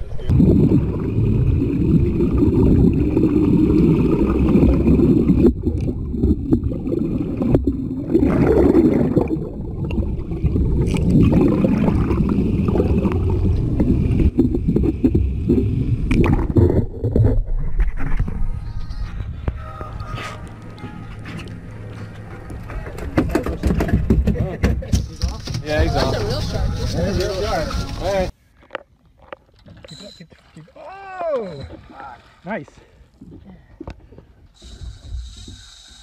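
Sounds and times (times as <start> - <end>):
muffled underwater rushing and gurgling: 0.0 - 22.9.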